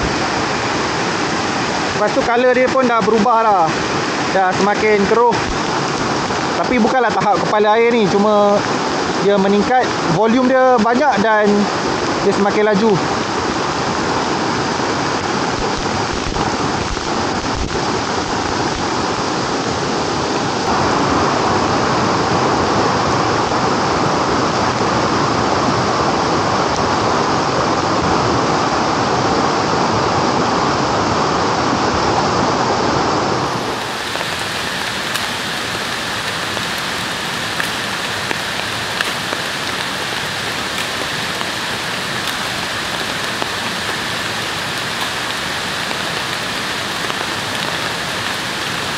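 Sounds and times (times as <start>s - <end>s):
rain falling: 0.0s - 48.9s
river running fast: 0.0s - 48.9s
raindrop ticks: 33.8s - 48.9s.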